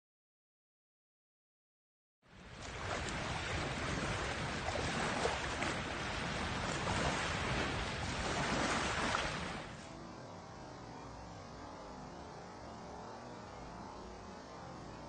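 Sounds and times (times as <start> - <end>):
waves washing: 2.3 - 10.0
wind on microphone: 2.3 - 10.0.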